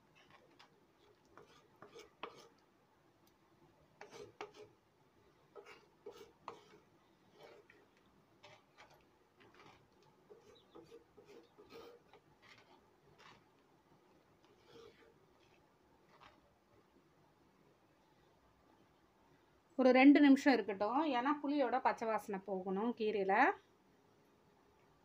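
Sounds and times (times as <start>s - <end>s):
ladle scraping clay pot: 0.0s - 2.6s, 4.0s - 4.8s, 5.5s - 16.5s.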